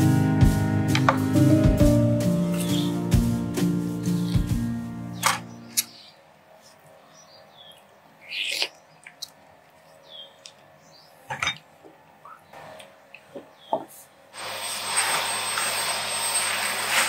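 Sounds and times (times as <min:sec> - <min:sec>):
background music: 0:00.0 - 0:05.8
fruit rind cracking: 0:08.2 - 0:10.7.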